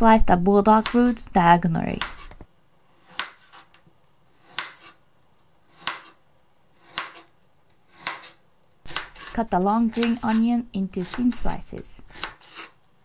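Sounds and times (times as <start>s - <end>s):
knife cutting onto board: 4.4s - 5.0s, 6.8s - 7.3s, 7.9s - 10.4s, 12.1s - 12.8s.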